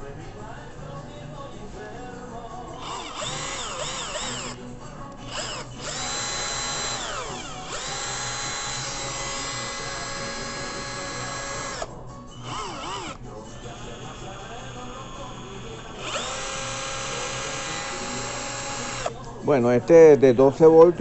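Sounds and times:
cordless drill motor whirring: 2.8 - 19.3.

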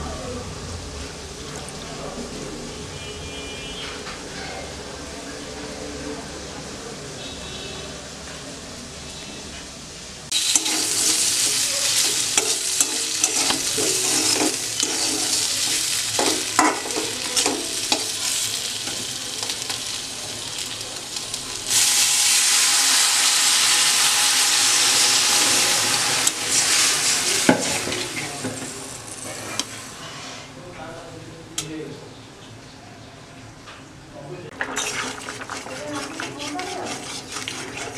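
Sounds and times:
food sizzling in hot oil: 10.2 - 30.0
metal spatula scraping wok: 10.3 - 20.0, 29.2 - 30.6, 34.6 - 37.9.

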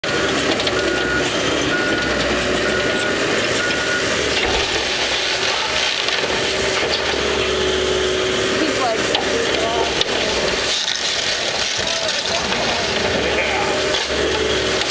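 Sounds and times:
excavator diesel engine running: 0.0 - 14.9
backup alarm beeps: 0.8 - 4.2.

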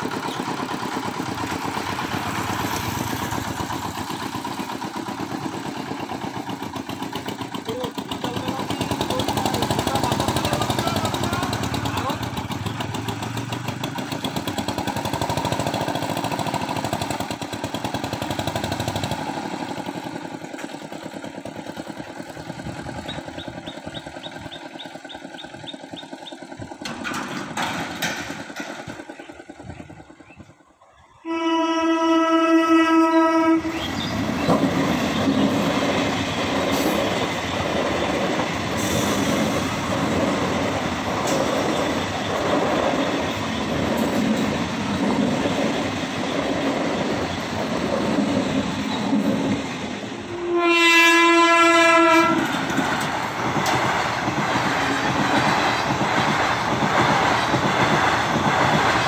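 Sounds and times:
engine and traffic noise: 0.0 - 30.9, 33.6 - 50.5, 51.5 - 59.0
train wheels rolling on rails: 0.0 - 31.2, 32.8 - 59.0
train horn blast: 31.2 - 33.8, 50.3 - 52.6.

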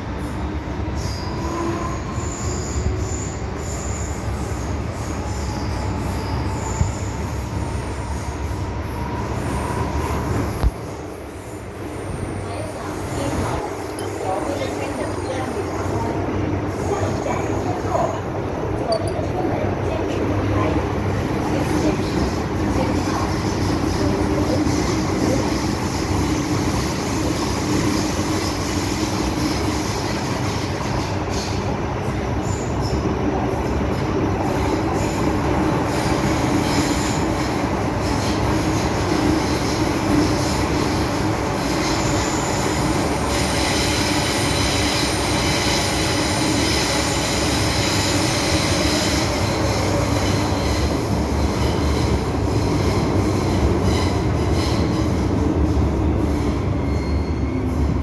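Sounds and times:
wheels rumbling on rail: 0.0 - 58.0
high-pitched wheel squeal: 0.9 - 10.5, 56.5 - 57.9.

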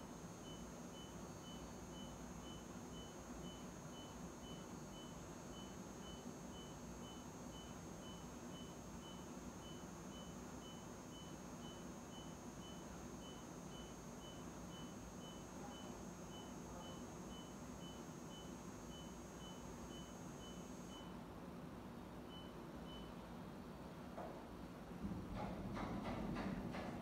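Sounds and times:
low machine hum: 0.0 - 21.4, 24.8 - 27.0
short high warning beeps: 0.4 - 21.2.

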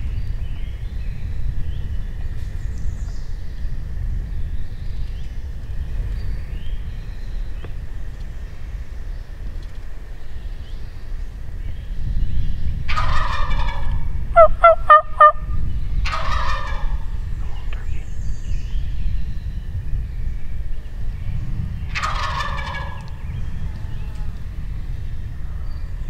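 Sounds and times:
turkey yelping: 12.9 - 15.5, 16.1 - 17.0, 22.0 - 23.1
turkey gobbling: 12.9 - 17.1, 21.9 - 23.1.

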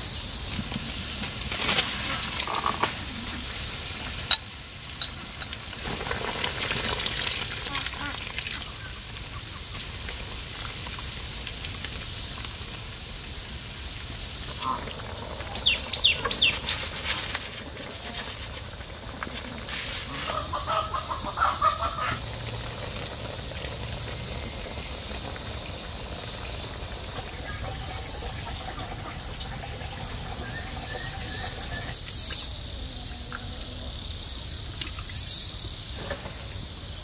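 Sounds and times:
soup boiling: 0.5 - 32.1
animal calls: 19.1 - 22.4.

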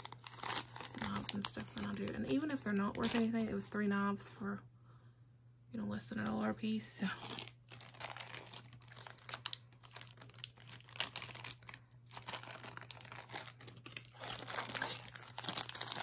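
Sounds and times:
packaging crinkling: 0.0 - 3.7, 7.1 - 16.0
faint low hum: 0.0 - 16.0.

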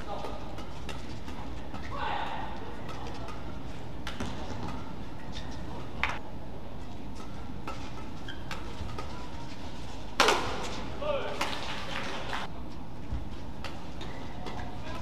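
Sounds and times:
badminton rackets hitting shuttlecock: 0.0 - 6.2, 7.1 - 11.8
indoor arena hum: 0.0 - 15.0.

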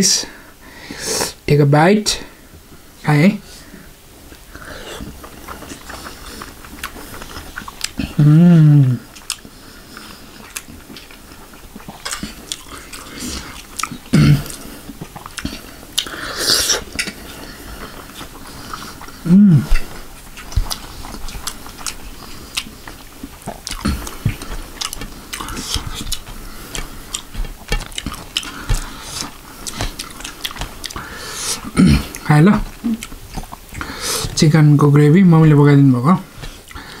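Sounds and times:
wet chewing and lip smacking: 4.3 - 8.2, 8.8 - 34.6, 36.3 - 37.0
person humming mm: 8.0 - 9.1, 19.2 - 20.0, 31.2 - 33.1.

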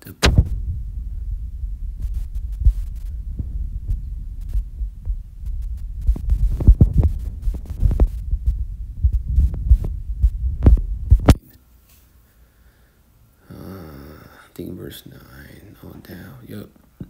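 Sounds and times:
handling thumps: 0.0 - 11.4
microphone handling rumble: 0.0 - 11.4.

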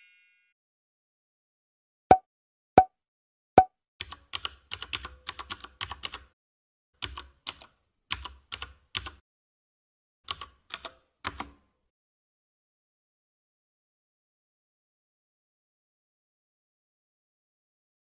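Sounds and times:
short bright ding: 0.0 - 0.5.

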